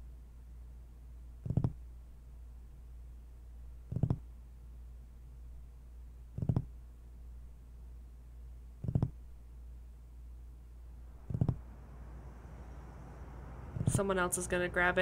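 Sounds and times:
steady low drone: 11.0 - 15.0.

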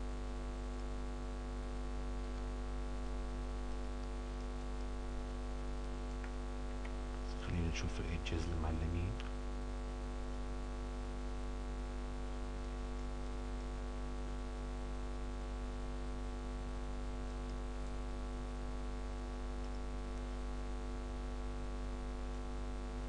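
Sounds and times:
electrical mains hum: 0.0 - 23.0
constant hiss: 0.8 - 10.9.

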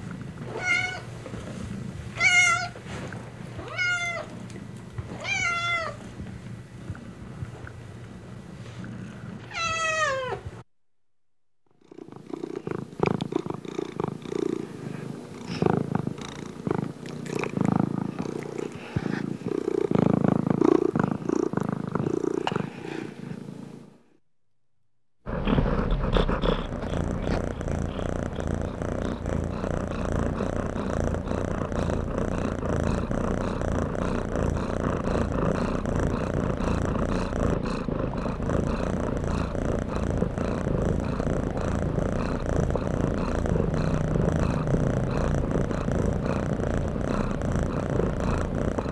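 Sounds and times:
cat purring: 0.0 - 10.3, 11.8 - 23.9, 25.3 - 48.9
kitten meowing: 3.6 - 4.2
close rumbling with clicks: 25.3 - 37.3.

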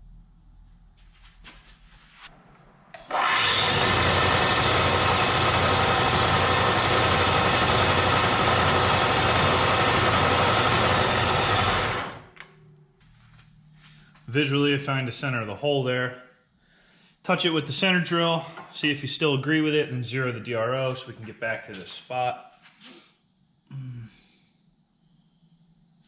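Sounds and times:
milling machine spindle running: 3.0 - 12.3.

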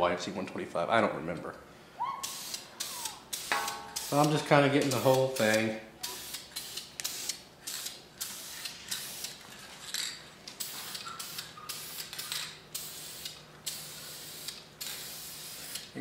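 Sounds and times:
aerosol spray hissing bursts: 2.2 - 9.4, 10.6 - 15.9.

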